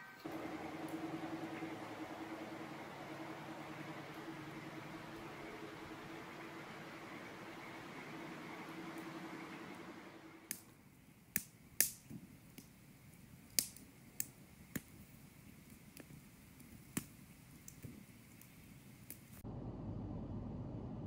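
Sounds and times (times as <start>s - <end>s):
low steady hum: 0.1s - 11.3s, 19.4s - 21.0s.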